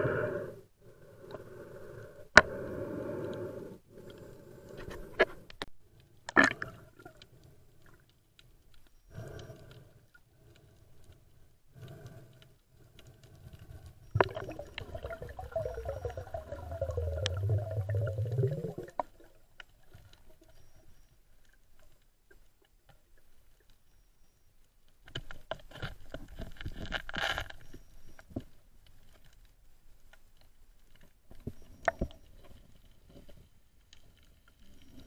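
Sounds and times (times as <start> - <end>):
small ticks: 7.1 - 14.2
muffled underwater water rush: 14.0 - 21.1.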